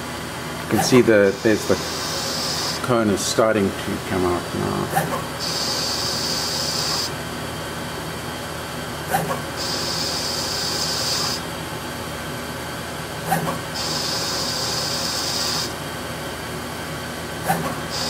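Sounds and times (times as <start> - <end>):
lathe machine hum: 0.0 - 18.0
high hiss of cutting tool: 1.3 - 2.8.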